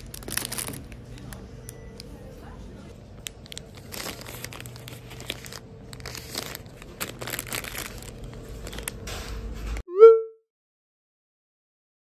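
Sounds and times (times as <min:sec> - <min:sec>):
plastic wrappers crinkling: 0:00.0 - 0:02.3, 0:03.0 - 0:09.2.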